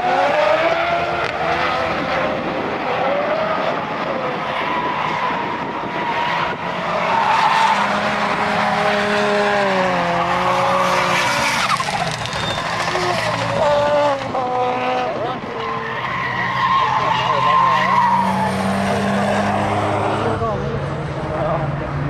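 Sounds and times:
car engines revving hard: 0.0 - 22.0
tyres squealing: 11.0 - 14.0.

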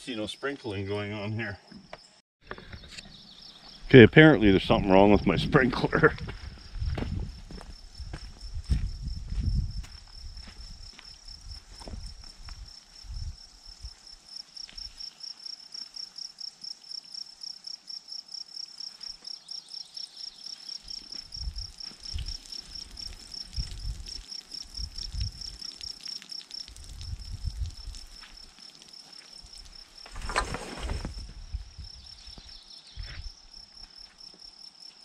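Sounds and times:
insect chirping trill: 0.0 - 35.0
wind thumps on microphone: 5.0 - 13.9, 21.3 - 22.4, 23.5 - 24.2, 24.8 - 25.6, 26.8 - 28.1, 30.1 - 32.4.

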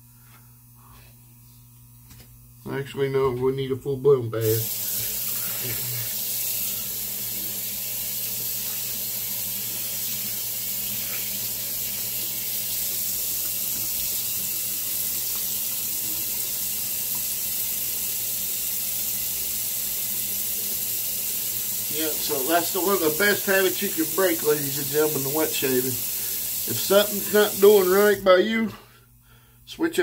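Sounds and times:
water running from a tap: 4.4 - 28.4.

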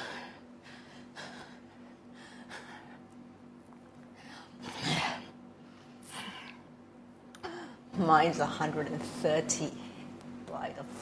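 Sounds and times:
woman breathing: 0.0 - 3.2.

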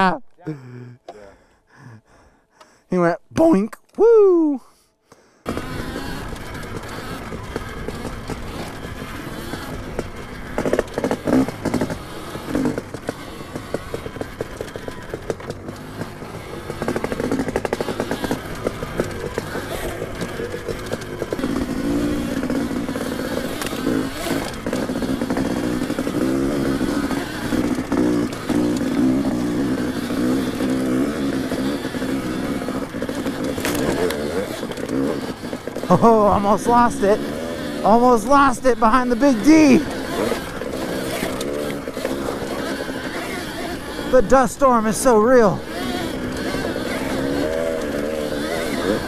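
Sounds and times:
dirt bike engines: 0.0 - 49.0
wind: 0.0 - 49.0
rattle: 5.5 - 37.8, 38.7 - 44.4, 45.6 - 49.0.

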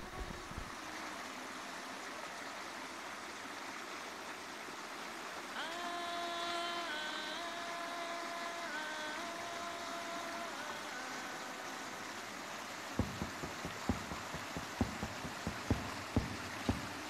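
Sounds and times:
steady hiss: 0.0 - 17.0
soft quick percussion beat: 13.0 - 17.0.

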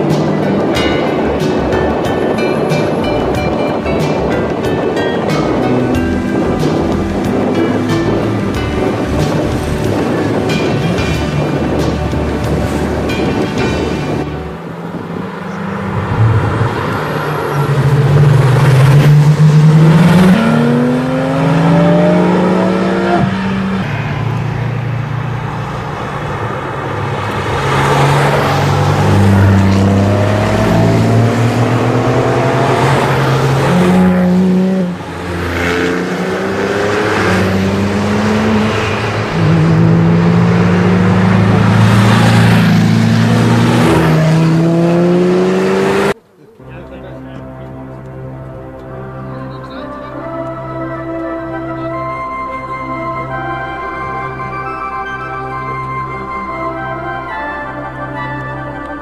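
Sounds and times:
sports cars accelerating past: 0.0 - 46.2.

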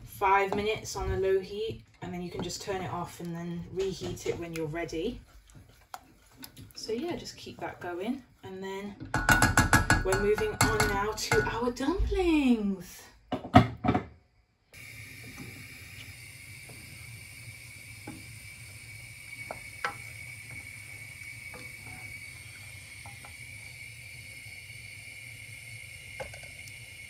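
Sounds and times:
wooden spoon stirring beans: 0.0 - 11.7, 15.4 - 27.0
spoon knocking against pot: 9.1 - 11.6
steady hiss with high tone: 14.7 - 27.0.

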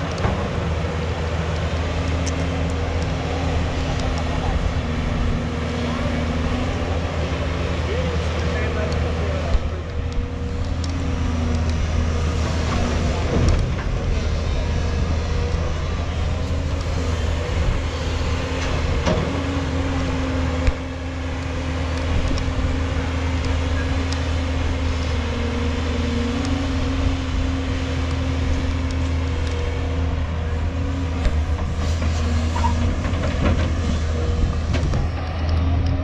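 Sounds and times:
excavator diesel engine running: 0.0 - 36.0.

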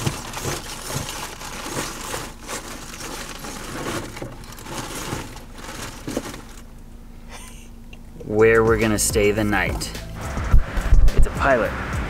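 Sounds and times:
material rustling and crinkling: 0.0 - 6.7.

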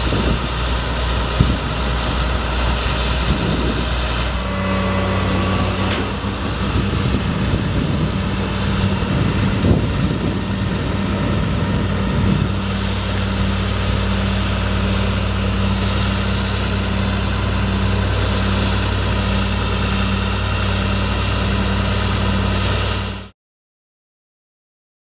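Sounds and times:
truck engine idling: 0.0 - 23.3.

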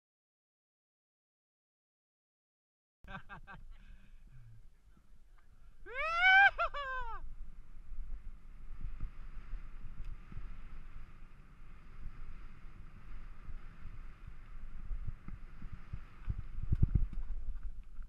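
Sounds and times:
wind on microphone: 5.5 - 18.0
mountain bike rumbling on dirt: 7.3 - 18.0.

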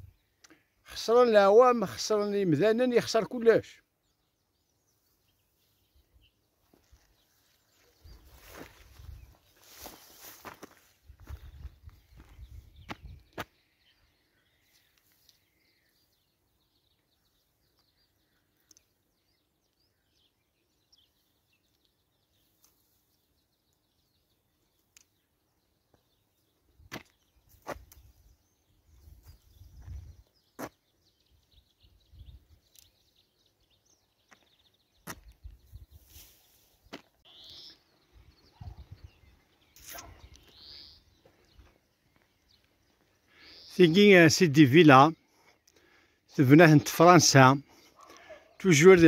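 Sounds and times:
wind rumble on microphone: 11.1 - 13.3, 28.9 - 30.2, 38.6 - 39.3.

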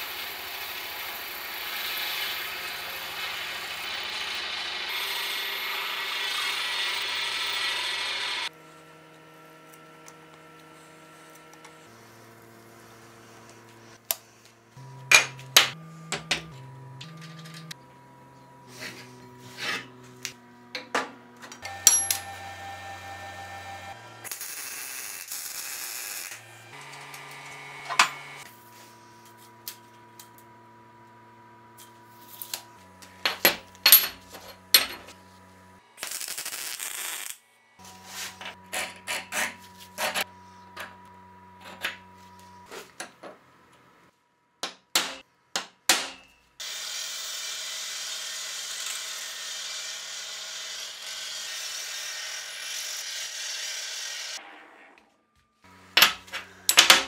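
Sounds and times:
drill press running: 0.0 - 8.5, 14.8 - 24.3
power tool running: 0.0 - 36.0, 37.8 - 42.8, 46.6 - 54.5
steel pieces clinking on steel table: 21.8 - 22.3, 33.2 - 35.1, 56.0 - 57.0.

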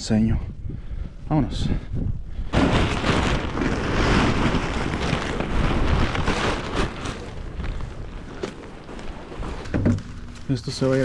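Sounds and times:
nylon fabric rustling and crumpling: 2.6 - 11.0.

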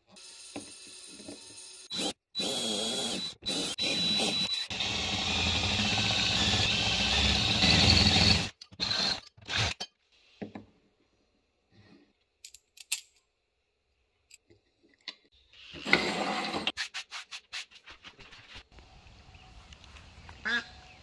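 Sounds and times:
power drill cutting metal: 0.2 - 9.8.

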